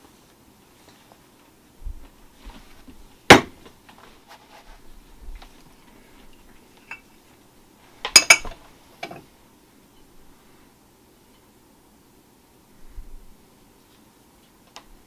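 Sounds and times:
metal mold halves clanking: 8.1 - 9.2.

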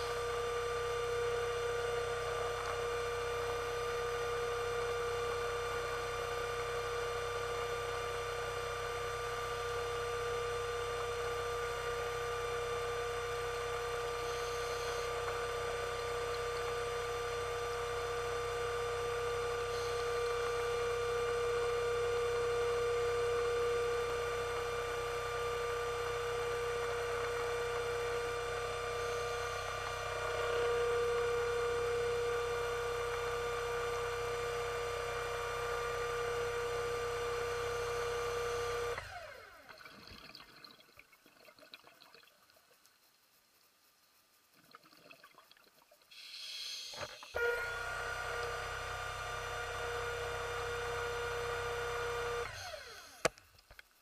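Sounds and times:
underwater scooter motor humming: 0.0 - 40.1, 47.0 - 53.3
faint brief hisses: 46.1 - 47.3.

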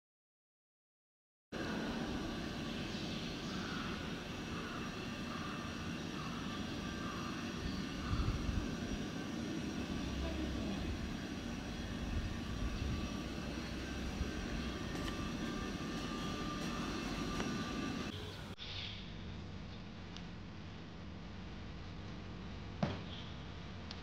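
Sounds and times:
distant engine drone: 1.6 - 20.5
faint whine: 1.6 - 23.9.

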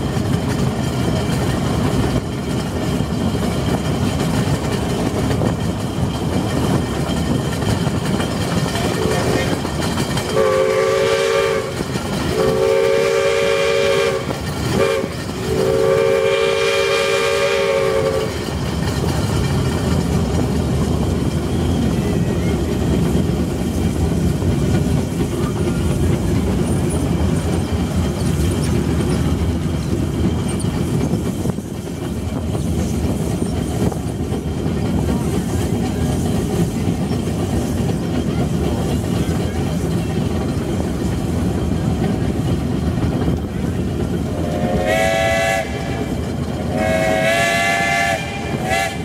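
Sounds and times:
train wheels rumbling on rails: 0.0 - 49.0
steam locomotive whistle blasts: 10.3 - 18.4, 44.3 - 49.0.

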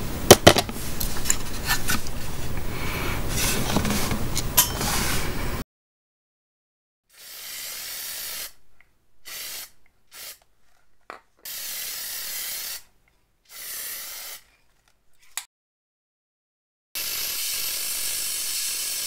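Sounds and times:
spray can hissing: 7.1 - 8.6, 9.2 - 10.5, 11.4 - 12.9, 13.5 - 14.5, 17.0 - 19.0.

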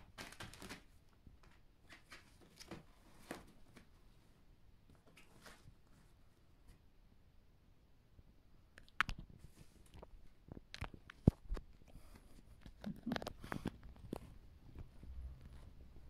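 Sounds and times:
kitten paws on fabric: 8.8 - 16.0.

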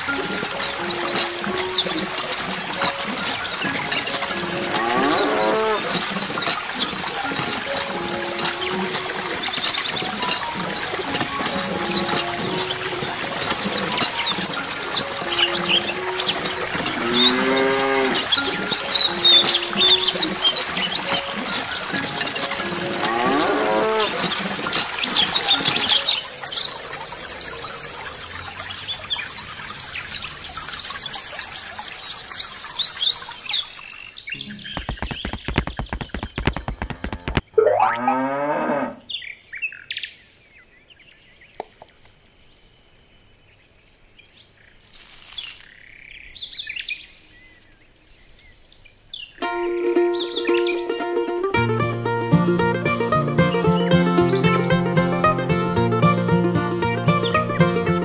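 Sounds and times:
songbirds chirping: 0.0 - 58.0
cow mooing: 4.7 - 6.0, 17.0 - 18.4, 22.9 - 24.3, 37.6 - 39.0.

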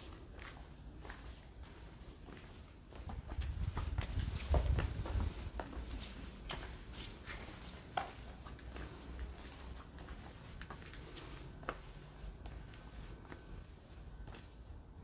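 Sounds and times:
footsteps: 0.0 - 14.6
steady low rumble: 3.0 - 7.6.

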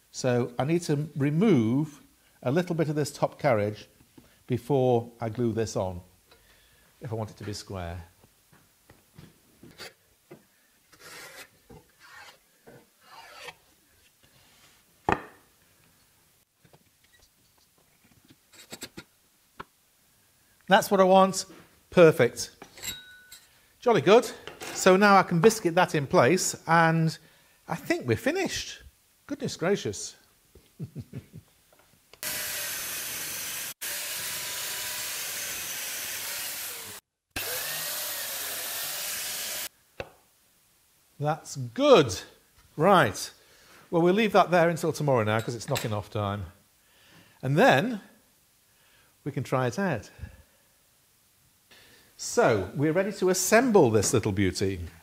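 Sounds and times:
plate joiner cutting wood: 10.9 - 12.4, 32.2 - 39.7.

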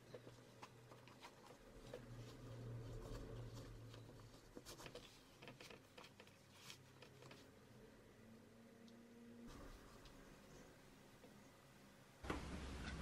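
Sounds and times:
clicks and rustles of handling: 0.0 - 7.6.

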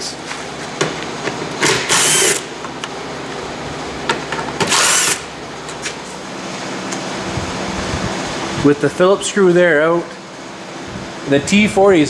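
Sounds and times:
power drill whirring: 1.9 - 2.4, 4.7 - 5.2.

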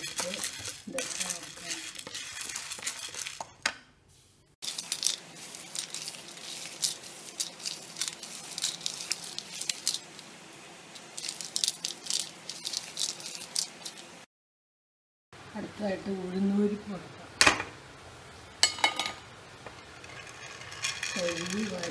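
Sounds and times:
nuts rattling on a steel plate: 0.0 - 3.5, 20.0 - 21.9.

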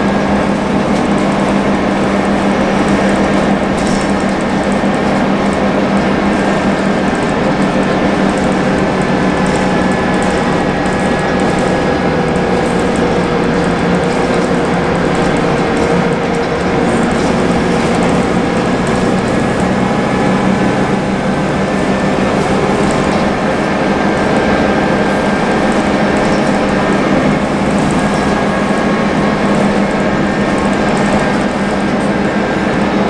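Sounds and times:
bus engine drone: 0.0 - 33.0
interior fittings rattling: 0.0 - 33.0.

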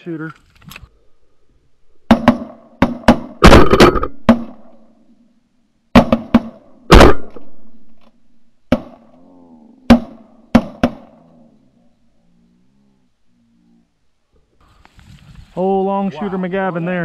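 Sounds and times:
shotgun blasts: 2.1 - 4.7, 5.9 - 7.7, 9.9 - 11.2.

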